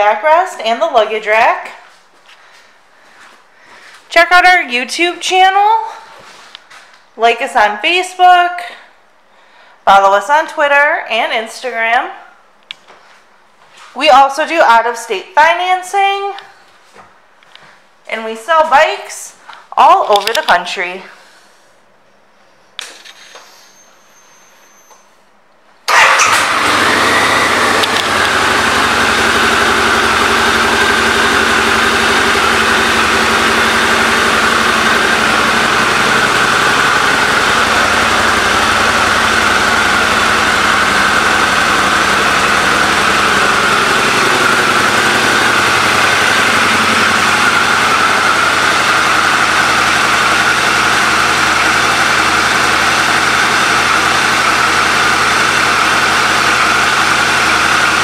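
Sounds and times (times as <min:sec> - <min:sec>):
motorcycle engine starting and idling: 0:25.8 - 0:58.0.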